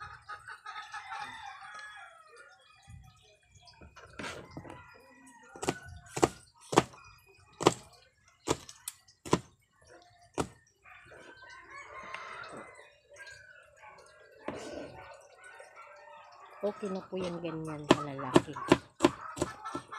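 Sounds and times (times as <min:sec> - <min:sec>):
knife chopping on plastic board: 0:05.6 - 0:07.0, 0:07.6 - 0:07.9, 0:08.5 - 0:09.5, 0:17.8 - 0:19.9.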